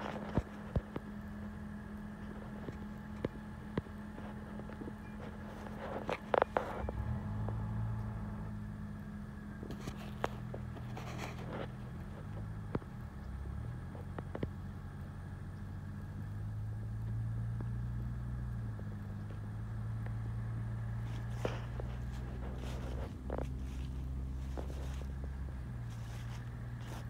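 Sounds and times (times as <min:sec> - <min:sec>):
low engine hum: 0:00.0 - 0:27.0
footsteps on dry leaves: 0:21.0 - 0:27.0.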